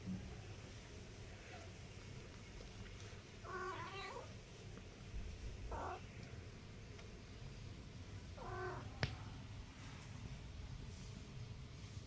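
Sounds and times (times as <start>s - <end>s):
kittens meowing: 3.5s - 4.3s, 5.7s - 6.0s, 8.4s - 8.9s.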